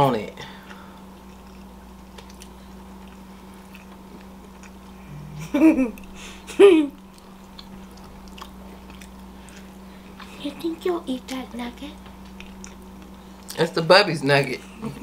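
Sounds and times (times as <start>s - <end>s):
chewing and biting: 0.6s - 4.9s, 7.0s - 10.3s, 12.2s - 13.6s.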